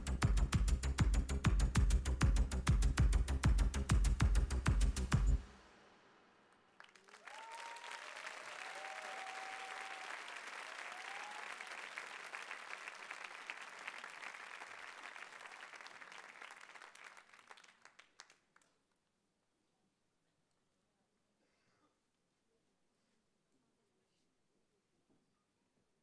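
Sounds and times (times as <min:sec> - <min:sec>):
electronic dance music: 0:00.0 - 0:05.9
audience cheering: 0:06.7 - 0:17.7
audience applause: 0:06.7 - 0:18.4.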